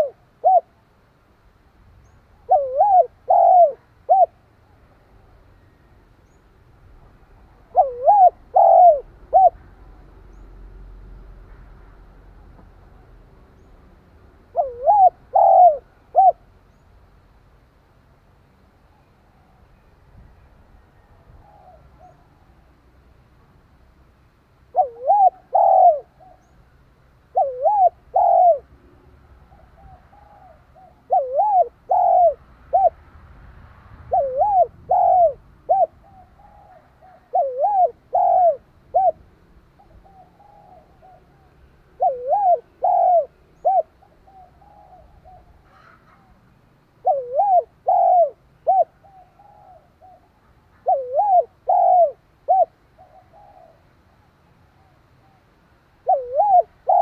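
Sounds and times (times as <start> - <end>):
dove cooing: 0.0 - 0.8, 2.4 - 4.5, 7.5 - 10.0, 14.5 - 16.5, 21.0 - 22.6, 24.7 - 26.6, 27.3 - 33.0, 34.1 - 46.4, 47.0 - 54.0, 56.0 - 57.0.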